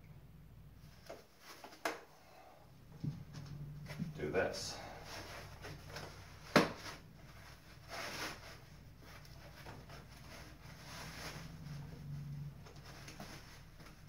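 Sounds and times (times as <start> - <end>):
rustling and scraping: 0.8 - 14.0.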